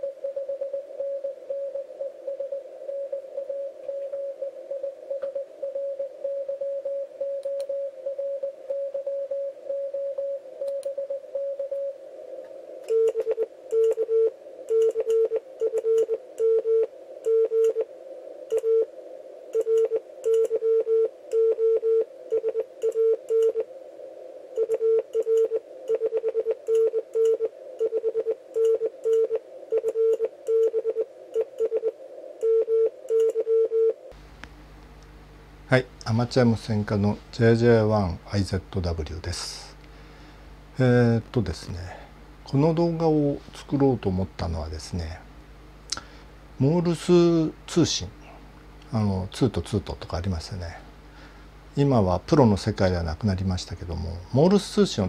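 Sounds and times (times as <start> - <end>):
morse code tone: 0.0 - 11.9.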